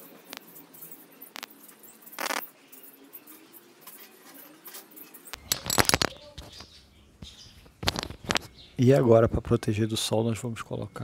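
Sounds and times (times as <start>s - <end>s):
small clicks: 2.2s - 2.5s
clip-on microphone handling noise: 7.7s - 8.5s.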